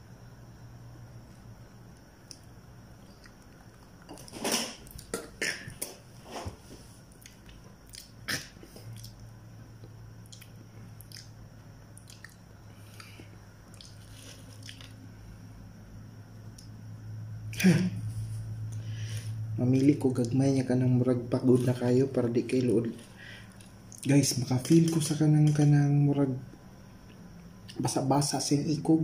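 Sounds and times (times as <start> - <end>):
person chewing crunchy food: 6.9 - 15.0, 22.9 - 24.1.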